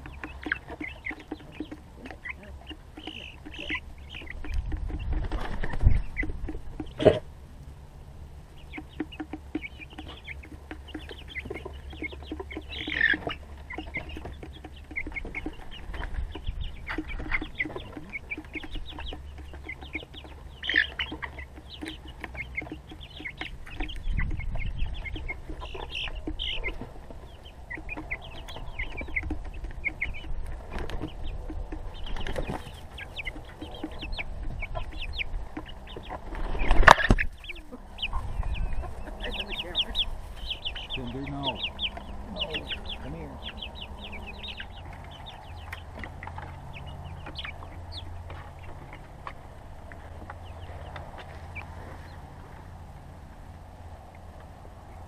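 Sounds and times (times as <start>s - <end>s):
young chickens clucking and peeping: 0.0s - 55.0s
wing flapping: 4.2s - 6.7s.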